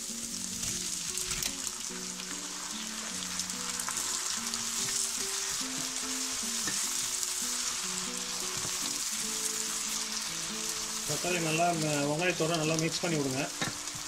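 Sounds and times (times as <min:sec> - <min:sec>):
soft background music: 0:00.0 - 0:14.0
vegetables sizzling in a frying pan: 0:00.0 - 0:14.0.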